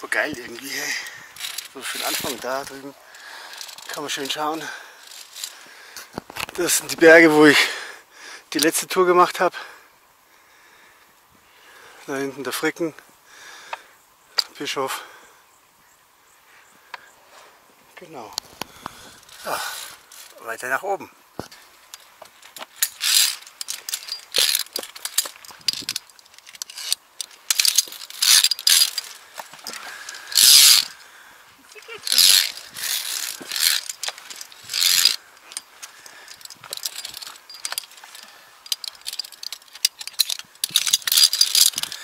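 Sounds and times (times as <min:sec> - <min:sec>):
carabiners clicking on steel cable: 0:00.0 - 0:07.6, 0:08.5 - 0:09.5, 0:18.0 - 0:20.8, 0:21.4 - 0:42.0.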